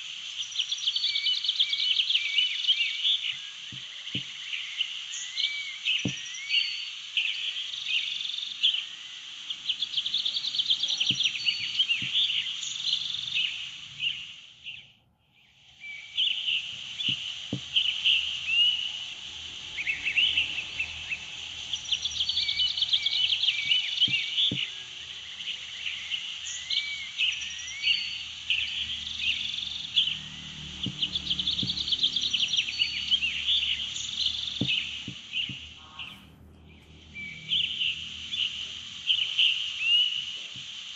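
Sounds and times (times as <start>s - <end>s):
birds chirping: 0.0s - 40.9s
insects trilling: 0.0s - 40.9s
frogs calling: 0.1s - 40.9s.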